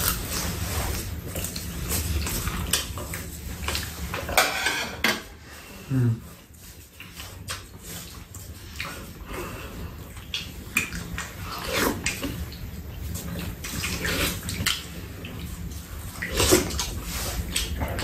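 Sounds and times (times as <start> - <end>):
wet slurping: 6.2 - 18.0
chewing mouth sounds: 10.0 - 18.0.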